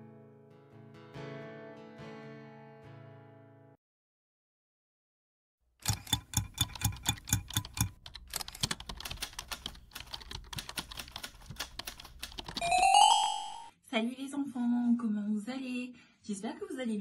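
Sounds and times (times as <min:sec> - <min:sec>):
rapid clicks: 0:05.8 - 0:12.6.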